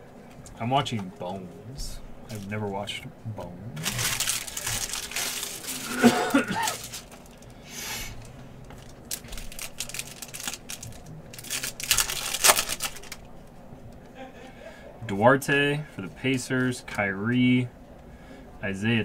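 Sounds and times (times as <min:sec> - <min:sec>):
foil pack tearing and crinkling: 0:03.8 - 0:07.6, 0:08.2 - 0:13.2
person clearing throat: 0:05.8 - 0:06.9.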